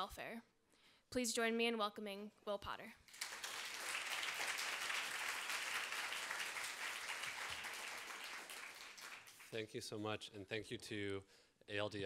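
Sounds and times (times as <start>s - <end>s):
audience applauding: 3.1s - 9.6s.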